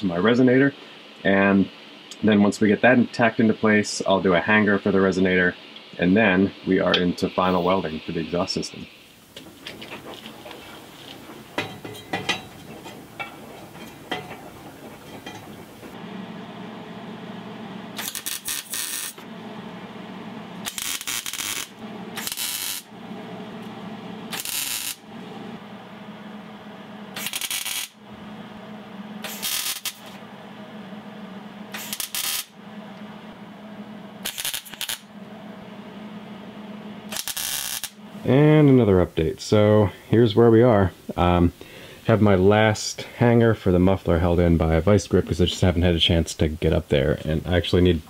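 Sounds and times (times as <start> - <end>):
steady low hum: 0.0 - 48.0
welding arc bursts: 18.0 - 19.2, 20.6 - 22.9, 24.3 - 25.1, 27.1 - 28.0, 29.2 - 30.2, 31.7 - 32.6, 34.2 - 35.1, 37.1 - 38.0.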